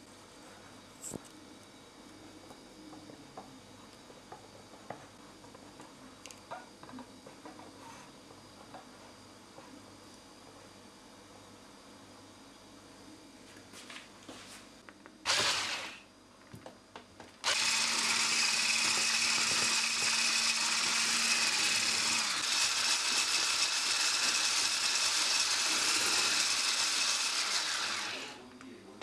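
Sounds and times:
electric mixer motor running: 0:15.3 - 0:16.0, 0:17.4 - 0:28.4.

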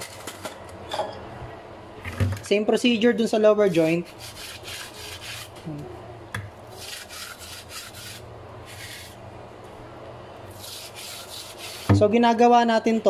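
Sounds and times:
brush scrubbing wood: 0:03.8 - 0:05.6, 0:06.8 - 0:09.2, 0:10.5 - 0:12.0.

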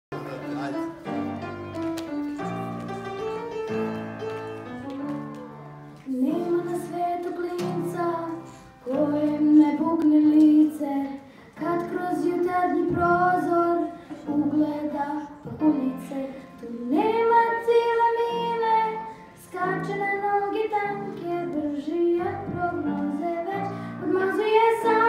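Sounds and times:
upright piano playing: 0:00.1 - 0:11.0, 0:11.6 - 0:25.0
children singing: 0:23.4 - 0:25.0.

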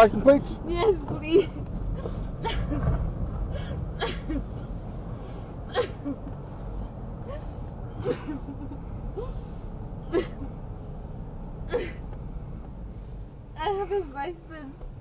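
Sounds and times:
car rumble: 0:00.0 - 0:15.0
woman sobbing: 0:00.7 - 0:02.8, 0:03.6 - 0:04.6, 0:05.7 - 0:06.3, 0:07.2 - 0:09.4, 0:10.1 - 0:10.5, 0:11.7 - 0:12.1.

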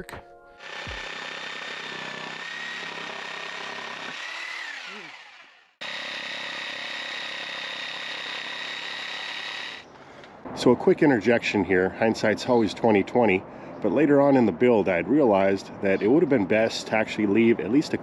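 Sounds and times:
reciprocating saw cutting wood: 0:00.6 - 0:09.9.

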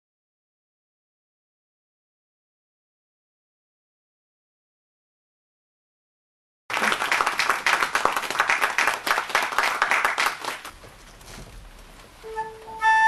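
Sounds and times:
audience applauding: 0:06.7 - 0:10.7.

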